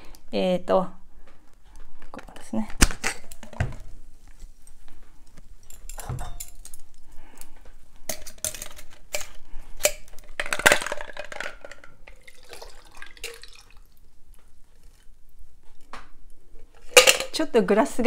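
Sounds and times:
glass and metal shaker clinking: 5.6s - 6.8s.

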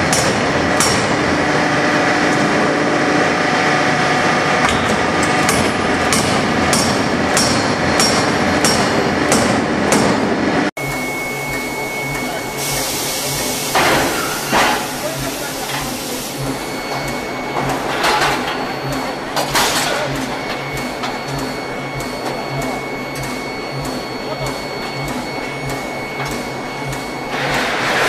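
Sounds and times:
power hammer striking metal: 0.0s - 1.3s, 4.6s - 12.3s
induction heater humming: 0.0s - 28.0s.

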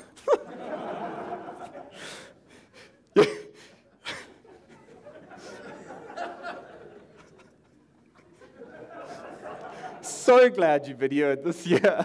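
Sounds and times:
audience laughing: 0.0s - 2.3s, 4.0s - 10.2s.

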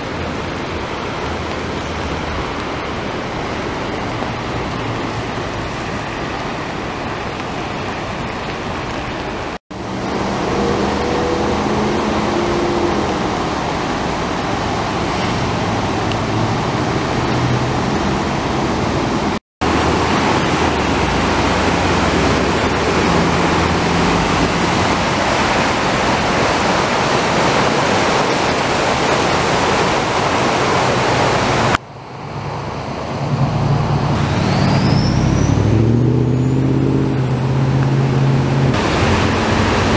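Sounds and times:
floodwater rushing: 0.0s - 39.9s
vehicle engine: 9.7s - 26.5s, 30.8s - 39.9s.

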